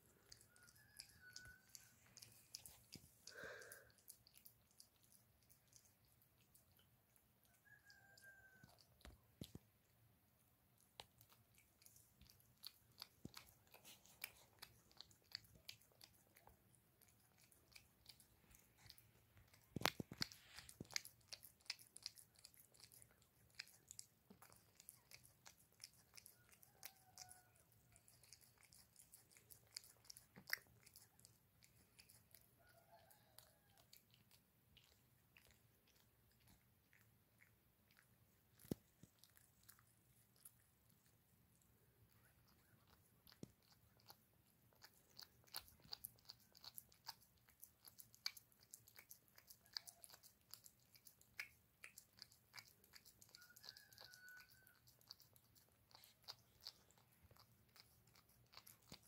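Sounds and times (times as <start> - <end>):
cat chewing wet food: 0.0 - 59.0.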